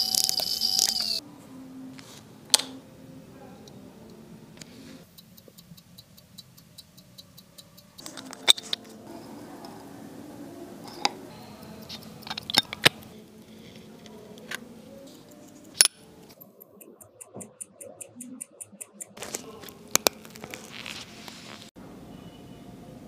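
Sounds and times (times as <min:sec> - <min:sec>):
rapid watch ticking: 0:05.0 - 0:08.1, 0:16.4 - 0:20.5
metallic clicks of small tools: 0:10.9 - 0:13.1.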